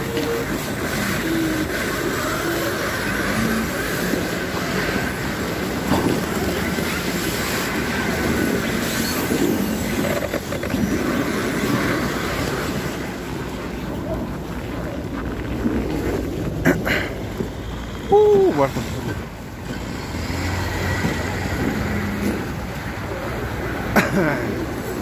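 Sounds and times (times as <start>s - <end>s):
truck diesel engine under load: 17.1s - 24.9s.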